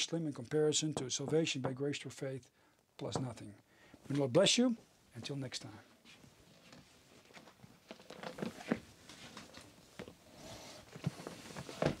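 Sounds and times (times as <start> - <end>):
rustling: 6.0 - 12.0.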